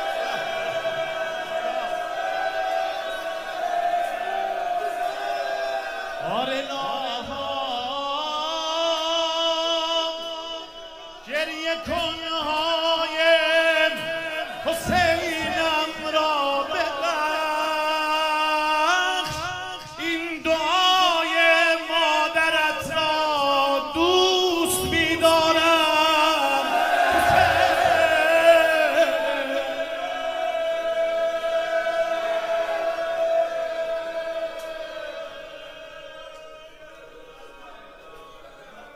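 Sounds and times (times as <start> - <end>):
man singing lament into microphone: 6.2 - 36.9.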